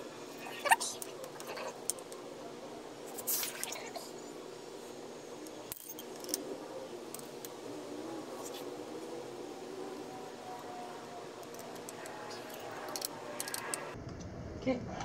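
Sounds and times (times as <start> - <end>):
faint steady hum: 0.0 - 15.0
hex key clicking and scraping bolts: 11.4 - 13.9.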